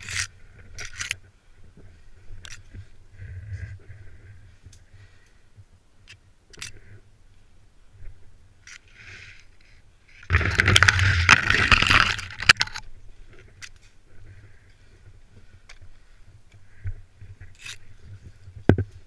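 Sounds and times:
branches scraping and snapping: 0.0 - 1.2, 8.6 - 13.9.

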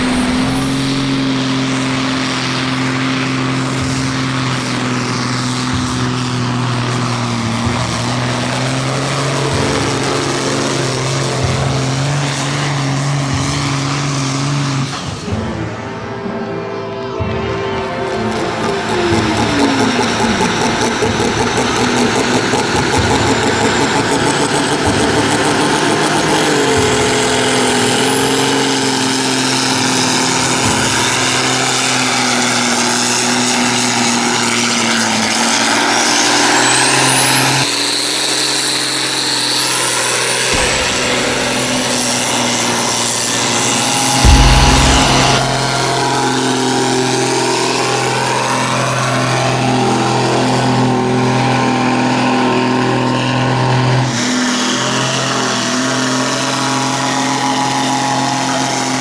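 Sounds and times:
loud low rumble: 0.0 - 3.8, 40.6 - 47.6
high engine whine: 0.0 - 59.0
tractor diesel engine at full load: 0.0 - 59.0.

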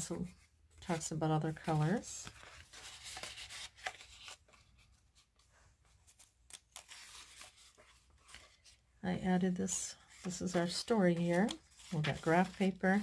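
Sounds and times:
paper rustling and sliding: 1.6 - 8.8, 10.1 - 13.0.

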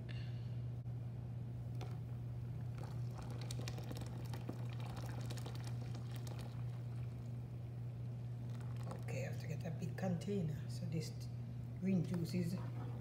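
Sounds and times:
steady low hum: 0.0 - 13.0
juice pouring and splashing: 1.7 - 9.4.

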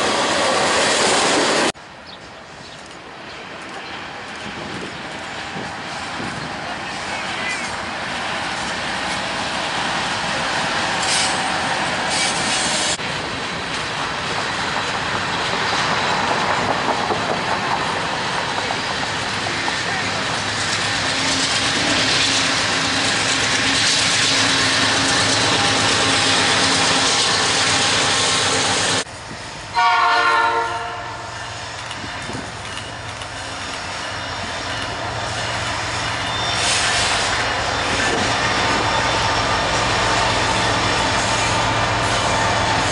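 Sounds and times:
freight train rolling past: 0.0 - 42.9
locomotive horn blast: 29.7 - 31.3.

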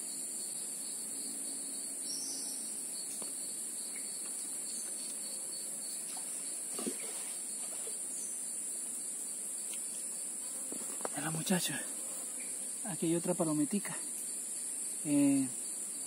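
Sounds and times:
insects chirring: 0.0 - 16.0
faint knock or rustle: 6.1 - 8.0.

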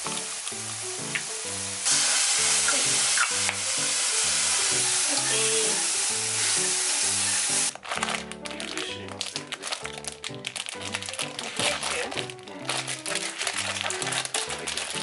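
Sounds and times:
mushrooms sizzling in a frying pan: 0.0 - 7.7, 9.2 - 15.0
soft background music: 0.0 - 15.0.

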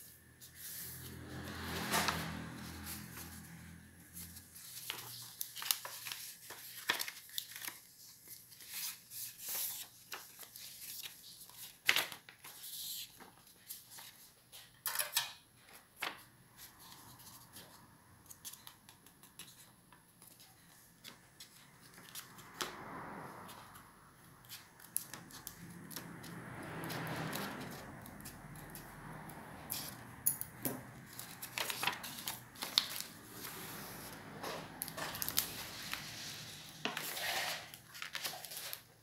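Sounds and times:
paper crackling and rustling: 0.5 - 14.7, 31.0 - 39.0.

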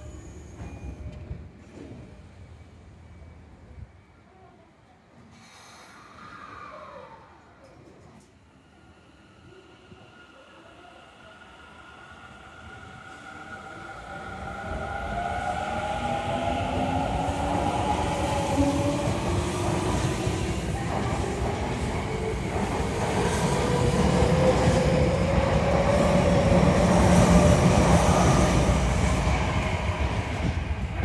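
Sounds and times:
train wheels on rails: 0.0 - 2.4, 12.6 - 31.0.

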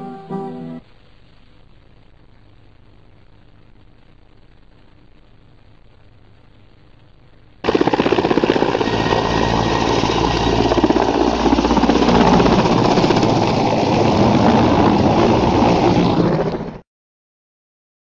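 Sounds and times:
helicopter rotor chopping: 7.6 - 16.8.

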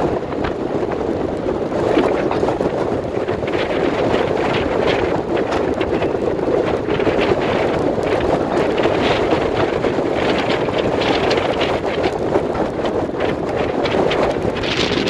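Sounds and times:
rough sea rushing along hull: 0.0 - 15.0
strong wind buffeting microphone: 0.0 - 15.0.

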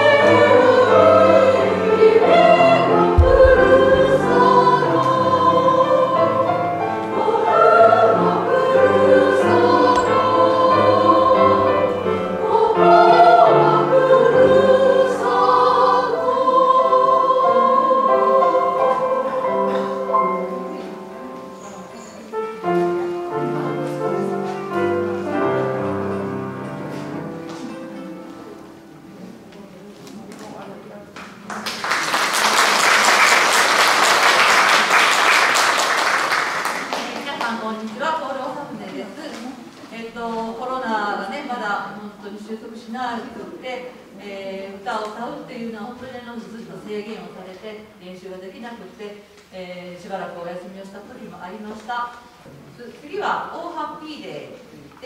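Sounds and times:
women's choir singing: 0.0 - 21.9, 39.9 - 46.8
piano accompaniment: 0.0 - 29.9.

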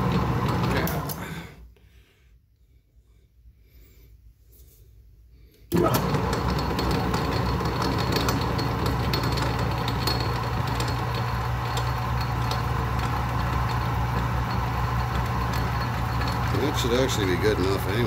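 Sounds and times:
lathe motor humming: 0.0 - 1.2, 5.7 - 18.0.

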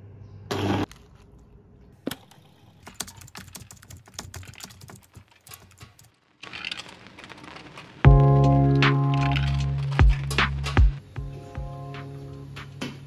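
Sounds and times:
keyboard typing: 2.1 - 10.2.

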